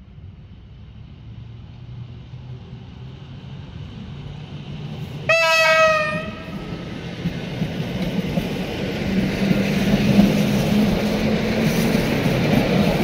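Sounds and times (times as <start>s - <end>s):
train rumble: 0.0s - 13.0s
train horn: 5.3s - 6.8s.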